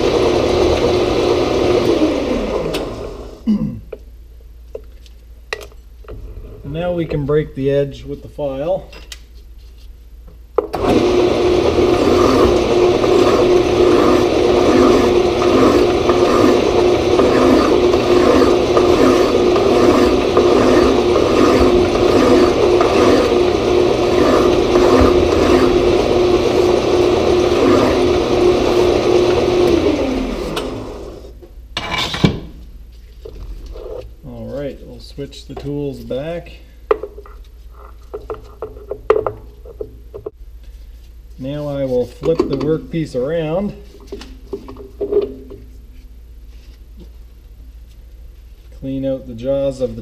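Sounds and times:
lathe running: 0:00.0 - 0:03.4, 0:10.8 - 0:31.3
hand file on spinning metal: 0:11.6 - 0:29.4.

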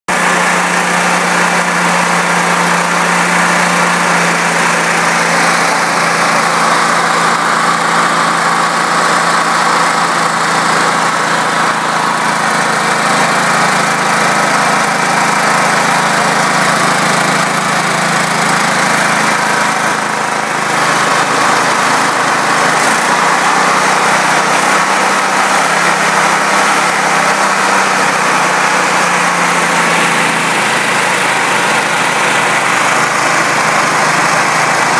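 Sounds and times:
generator engine running: 0:00.1 - 0:34.9.

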